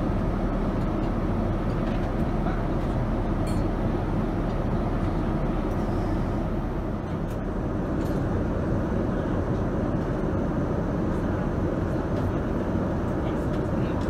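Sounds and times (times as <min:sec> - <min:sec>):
airliner cabin noise: 0:00.0 - 0:14.0.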